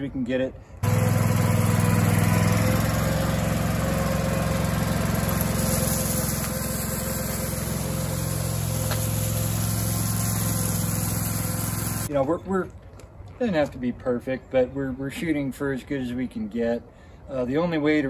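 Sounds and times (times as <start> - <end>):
loader engine running under load: 0.8 - 12.1.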